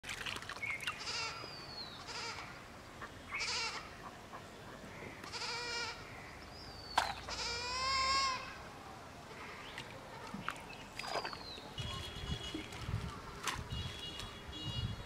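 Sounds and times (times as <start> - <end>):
goat bleating: 5.3 - 6.0, 7.3 - 8.5.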